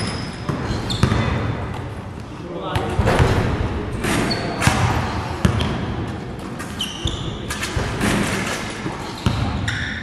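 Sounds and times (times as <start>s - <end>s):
basketballs bouncing on court: 0.1s - 1.9s, 2.7s - 6.1s, 7.0s - 8.2s, 8.8s - 10.0s
short high squeaks: 6.7s - 7.6s.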